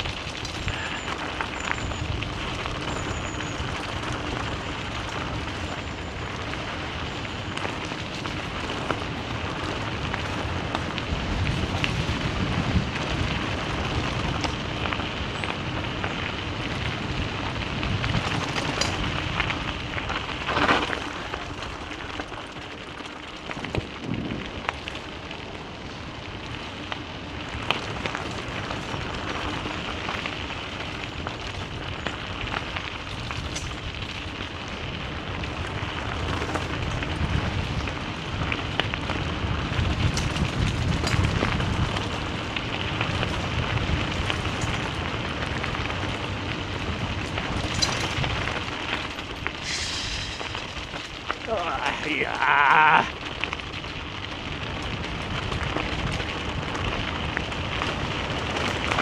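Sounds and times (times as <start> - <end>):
tyres crackling on gravel: 0.0 - 59.0.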